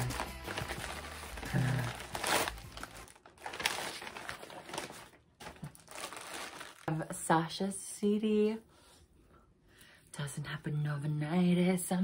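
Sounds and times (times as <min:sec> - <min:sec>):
person humming: 0:00.0 - 0:02.4
plastic packaging crinkling: 0:00.0 - 0:07.2.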